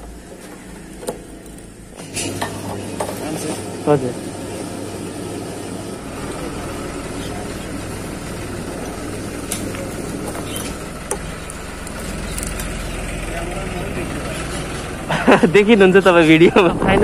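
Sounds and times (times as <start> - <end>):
low engine hum: 3.7 - 17.0.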